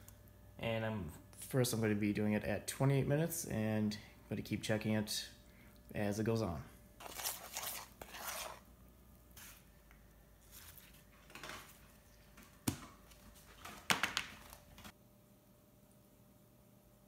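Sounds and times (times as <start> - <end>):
utensil scraping metal bowl: 7.0 - 8.7.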